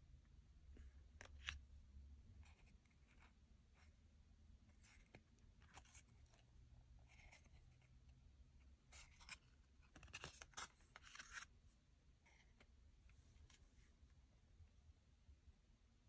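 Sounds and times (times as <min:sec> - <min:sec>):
trading cards shuffling: 0:08.9 - 0:11.5.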